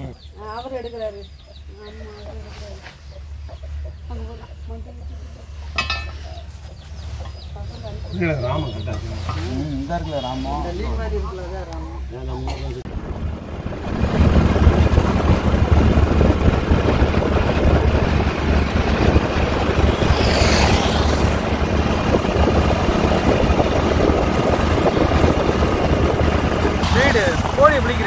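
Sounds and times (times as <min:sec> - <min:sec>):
motorcycle engine and road noise: 0:00.2 - 0:28.0
higher rushing sound: 0:12.9 - 0:28.0
wind rumble on microphone: 0:12.9 - 0:28.0.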